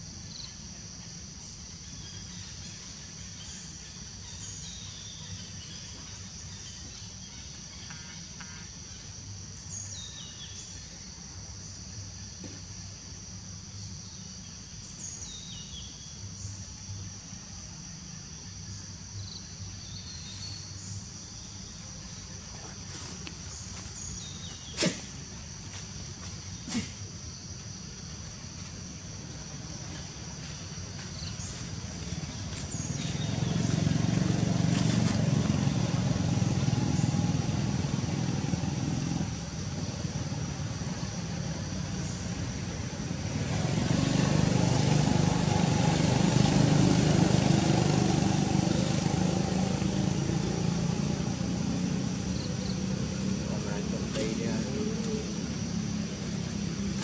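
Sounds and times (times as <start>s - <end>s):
high insect drone: 0.0s - 57.0s
motor vehicle engine: 28.5s - 57.0s.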